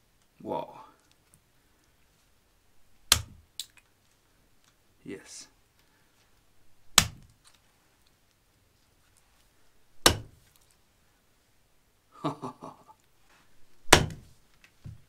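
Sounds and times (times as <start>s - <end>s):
blade chopping into wooden block: 6.9s - 7.2s, 10.0s - 10.4s, 13.9s - 14.3s.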